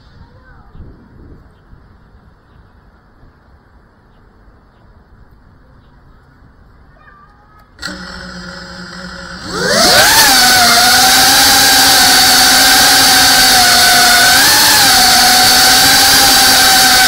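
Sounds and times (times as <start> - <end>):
drone motors whining: 7.8 - 17.0.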